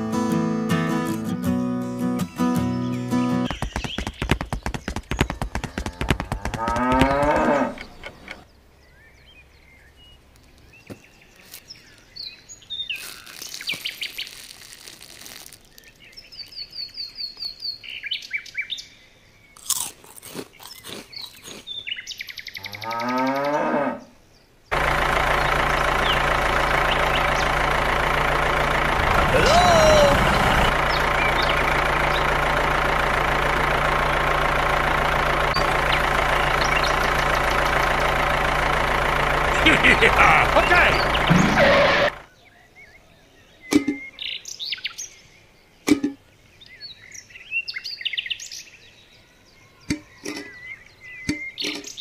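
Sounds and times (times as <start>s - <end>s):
engine running: 0.0s - 8.5s, 24.7s - 42.3s
clicks and crunching: 3.5s - 8.4s, 12.9s - 17.4s, 19.6s - 21.7s
cow mooing: 5.8s - 8.2s, 22.6s - 24.1s.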